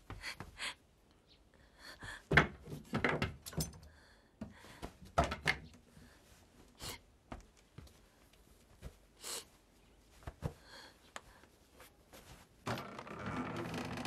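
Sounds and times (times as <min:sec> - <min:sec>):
woman sniffling and sobbing: 0:06.7 - 0:07.2.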